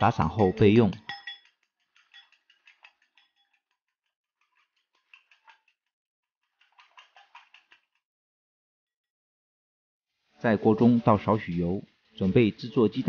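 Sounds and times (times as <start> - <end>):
utensil ticking against bowl: 0.2 - 5.8, 6.5 - 8.0.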